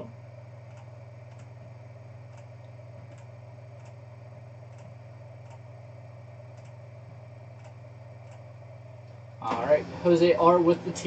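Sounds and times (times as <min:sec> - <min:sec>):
low electrical hum: 0:00.0 - 0:11.0
computer mouse clicks: 0:00.7 - 0:01.6, 0:02.3 - 0:04.0, 0:04.7 - 0:05.7, 0:06.5 - 0:06.8, 0:07.6 - 0:08.5.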